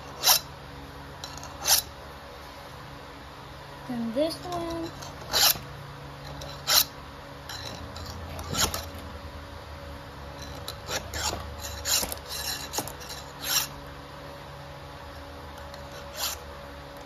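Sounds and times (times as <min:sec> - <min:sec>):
file rasping on chainsaw chain: 0:00.0 - 0:00.5, 0:01.2 - 0:01.9, 0:04.8 - 0:05.6, 0:06.3 - 0:06.9, 0:10.4 - 0:13.8, 0:15.8 - 0:16.4.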